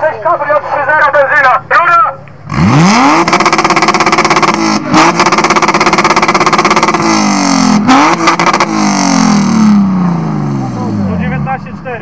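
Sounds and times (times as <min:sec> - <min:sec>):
car engine revving: 0:02.4 - 0:12.0.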